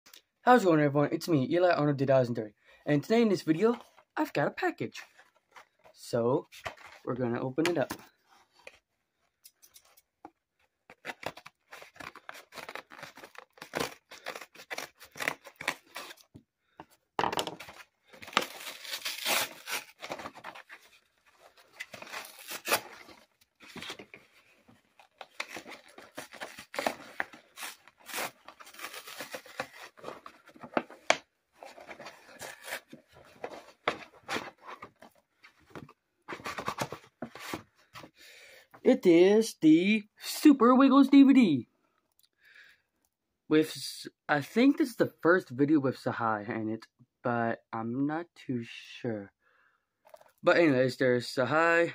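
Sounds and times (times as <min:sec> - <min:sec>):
paper ripping and crinkling: 0:10.9 - 0:16.3, 0:17.6 - 0:35.0.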